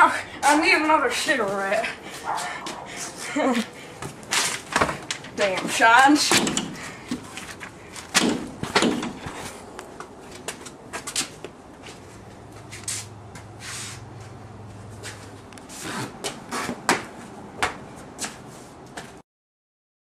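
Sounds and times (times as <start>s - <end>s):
door clicks and knocks: 6.3s - 6.8s, 8.1s - 9.2s.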